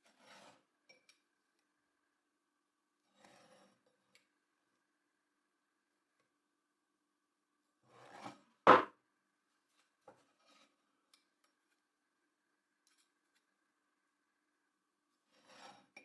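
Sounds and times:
metal rod scraping wood: 0.0s - 0.6s, 3.1s - 3.9s, 7.9s - 8.8s, 15.3s - 16.0s
rod clunking on table: 8.7s - 8.9s.

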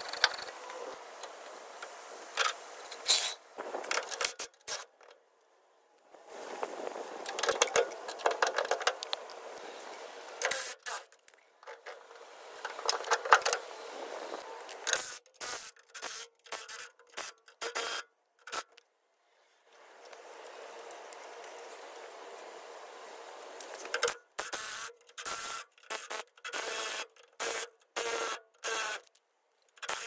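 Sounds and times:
jack stands scraping: 0.0s - 5.2s, 6.2s - 18.7s
metallic clicks and knocks: 7.2s - 9.4s.

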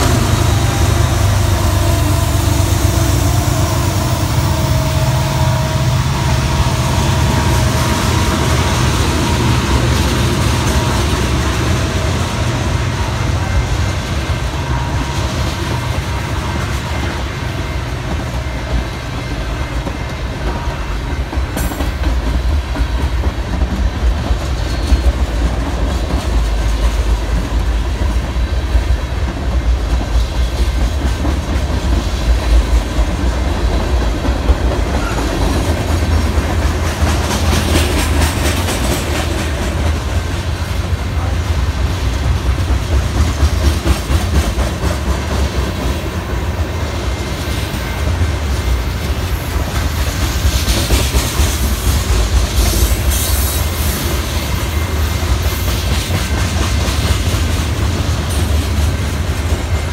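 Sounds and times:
freight cars rumbling past: 0.0s - 19.6s
wheels clacking over rail joints: 0.0s - 59.9s.

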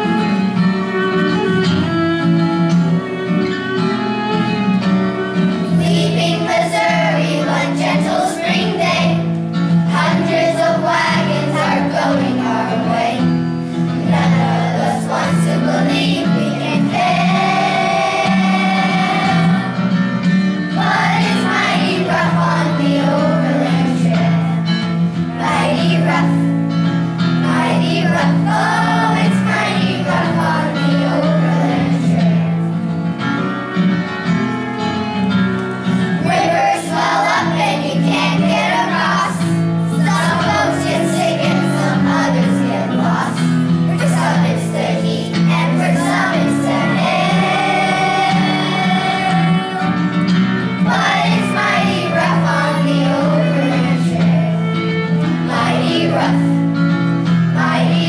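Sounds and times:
musical accompaniment: 0.0s - 58.0s
children singing: 5.6s - 20.0s, 20.6s - 24.8s, 25.4s - 26.6s, 27.4s - 32.8s, 36.2s - 56.7s, 57.4s - 58.0s.

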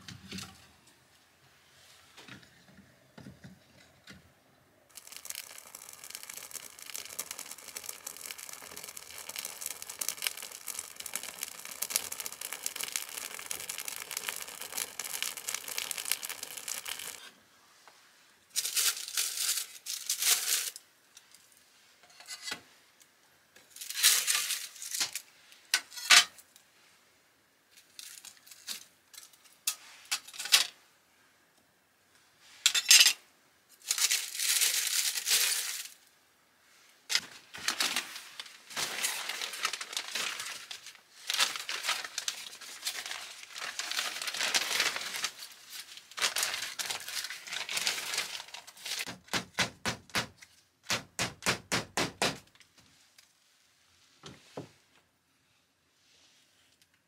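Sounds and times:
wood fire crackling: 4.9s - 17.4s, 37.1s - 50.3s
crinkling and rustling: 4.9s - 17.9s, 18.5s - 21.6s, 33.7s - 36.0s, 37.1s - 49.6s.

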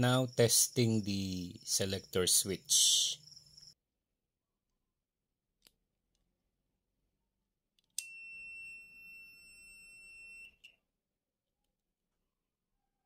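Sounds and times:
multimeter continuity beep: 8.0s - 10.8s.

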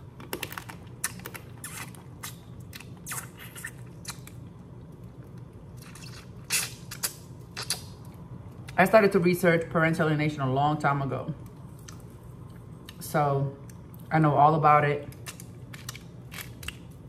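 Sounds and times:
wet squelches and chewing: 0.2s - 8.8s, 11.4s - 13.0s, 15.1s - 17.0s.

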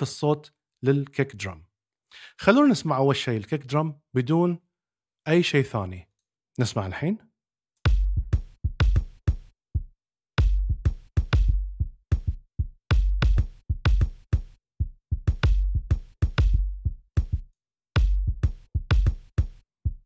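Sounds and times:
kick drum thuds: 7.9s - 9.5s, 10.4s - 17.4s, 18.0s - 20.0s.

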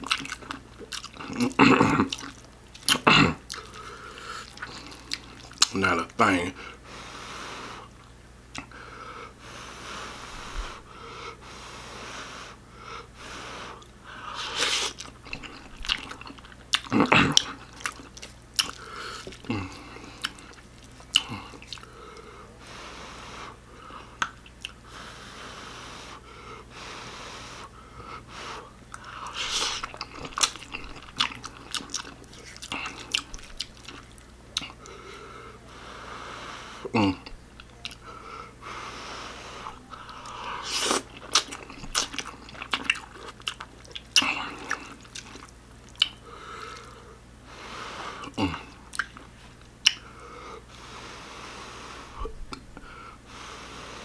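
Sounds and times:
chewing and slurping noodles: 0.0s - 5.7s, 13.3s - 22.3s, 28.6s - 35.1s, 39.1s - 47.0s
breathing: 3.6s - 4.5s, 8.7s - 14.6s, 18.8s - 20.1s, 21.8s - 24.2s, 24.9s - 29.5s, 34.8s - 36.9s, 38.0s - 40.7s, 46.2s - 48.3s, 50.0s - 54.0s.

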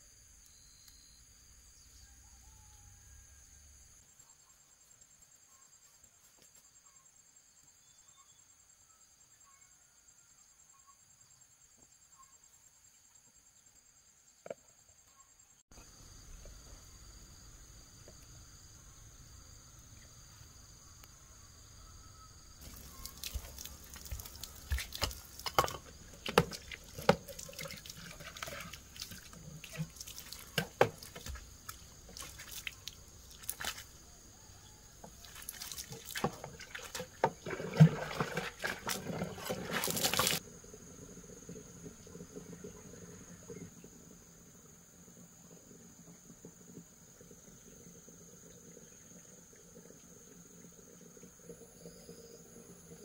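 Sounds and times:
crickets chirping: 0.0s - 53.0s
water splashing and pouring: 22.6s - 34.0s, 35.0s - 40.4s.

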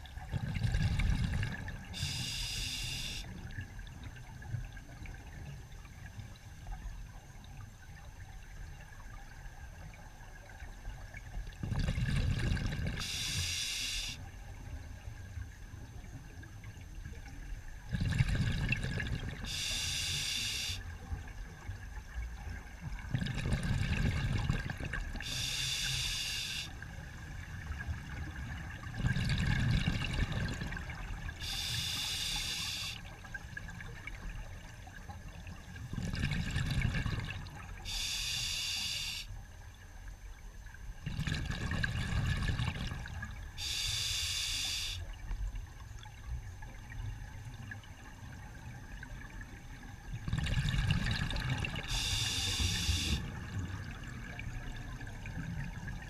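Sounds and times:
low bubbling rumble on exhale: 0.0s - 2.3s, 8.2s - 13.1s, 17.1s - 19.5s, 20.9s - 25.3s, 27.4s - 31.4s, 33.1s - 37.9s, 41.0s - 43.4s, 45.2s - 56.0s
regulator hiss on inhale: 2.0s - 3.4s, 13.0s - 14.2s, 19.4s - 20.9s, 25.2s - 26.8s, 31.4s - 33.0s, 37.8s - 39.4s, 43.6s - 45.1s, 51.9s - 53.3s.

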